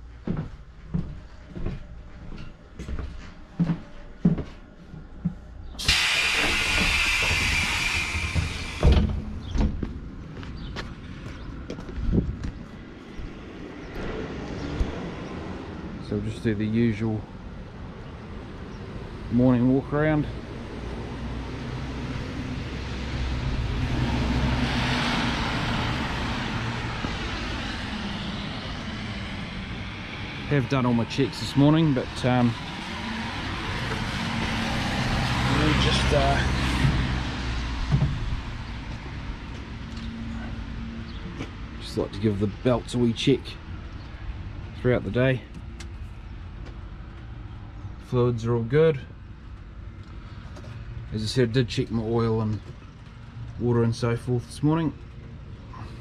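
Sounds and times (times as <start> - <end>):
footsteps walking: 0.0 - 5.8, 8.4 - 13.4, 26.4 - 27.7, 32.6 - 34.9, 36.6 - 40.3, 45.5 - 47.3, 49.5 - 50.8
steady low engine hum: 0.0 - 56.0
loud steady hiss: 5.8 - 9.1
vehicle passing by: 6.4 - 48.1.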